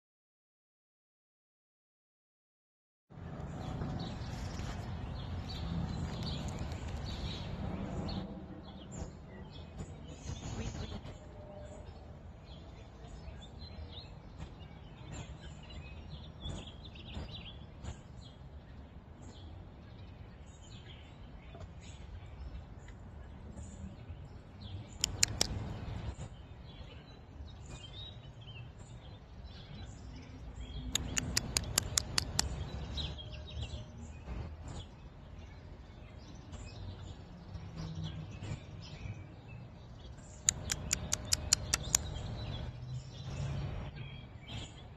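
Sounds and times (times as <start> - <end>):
small birds chirping: 3.3 - 44.9
sharp clicks: 25.0 - 25.8, 30.9 - 32.7, 40.4 - 42.3.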